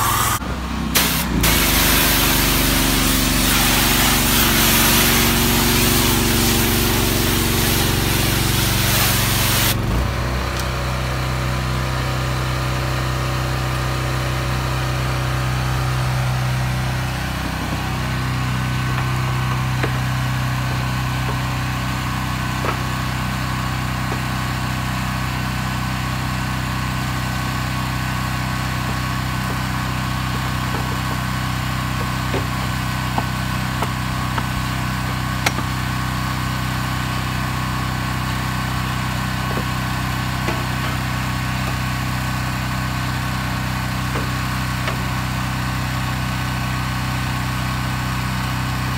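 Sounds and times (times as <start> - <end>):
pressure washer spray hissing: 0.0 - 0.4, 1.0 - 9.8, 27.9 - 46.0
engine running steadily: 0.0 - 48.9.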